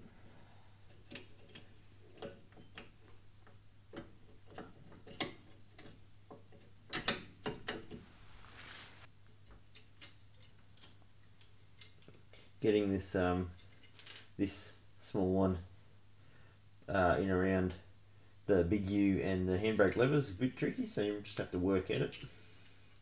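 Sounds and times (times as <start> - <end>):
light metal clicks and taps: 0.8 - 8.0.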